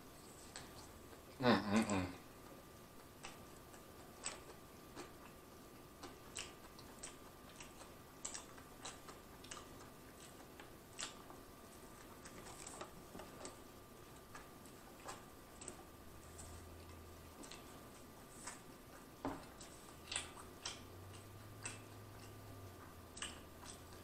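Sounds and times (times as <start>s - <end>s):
faint steady hum: 0.0s - 24.0s
person chewing with wet mouth clicks: 0.2s - 24.0s.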